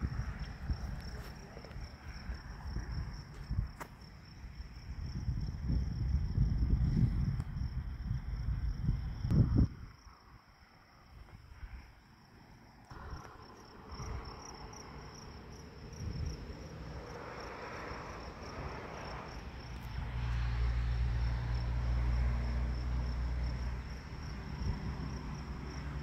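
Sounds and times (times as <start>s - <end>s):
insects chirping: 0.0s - 26.0s
distant diesel locomotive hum: 12.9s - 26.0s.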